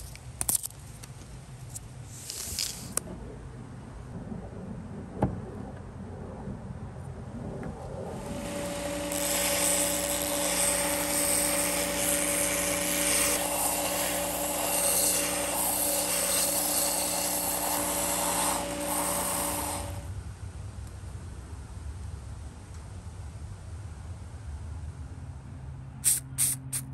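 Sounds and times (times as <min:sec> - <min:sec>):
belt sander motor hum: 0:08.0 - 0:20.1
wood sanding hiss: 0:08.2 - 0:20.1, 0:26.0 - 0:26.9.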